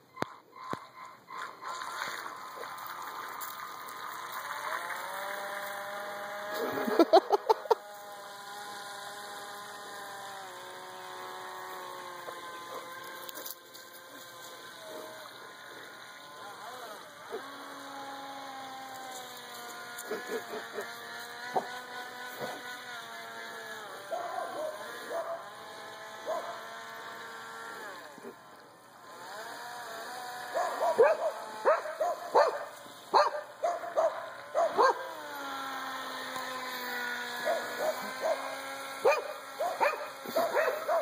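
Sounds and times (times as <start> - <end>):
toy boat motor whining: 0.0 - 41.0
dog barking and yipping: 12.2 - 13.2, 24.1 - 25.5, 26.2 - 26.6, 30.5 - 35.2, 37.4 - 41.0.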